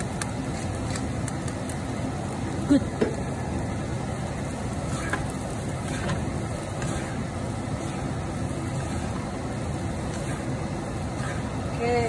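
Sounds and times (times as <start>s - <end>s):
rice stir-frying in pan: 0.0s - 12.0s
spatula scraping and knocking pan: 4.8s - 11.7s.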